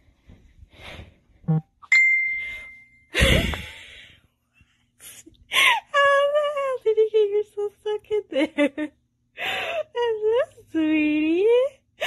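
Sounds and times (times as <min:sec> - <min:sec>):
bright bell-like ding: 0:01.9 - 0:03.0.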